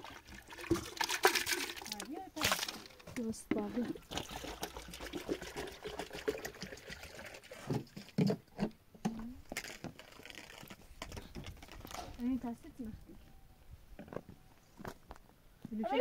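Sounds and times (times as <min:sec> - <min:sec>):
water splashing in metal pot: 0:00.0 - 0:03.0, 0:03.8 - 0:07.6.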